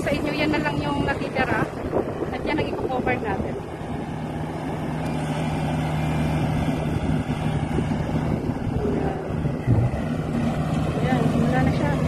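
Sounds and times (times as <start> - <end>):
combine harvester engine droning: 0.0 - 12.0
low thump: 9.4 - 10.2.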